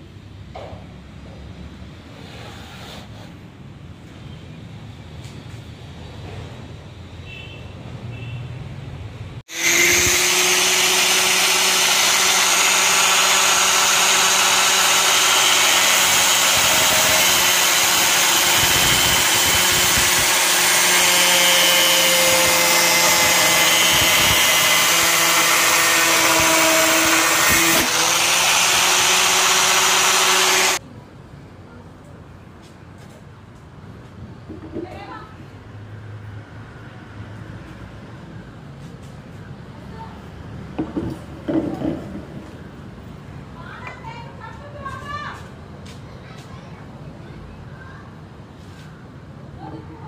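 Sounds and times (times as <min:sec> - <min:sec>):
angle grinder cutting plastic: 0:09.5 - 0:30.8.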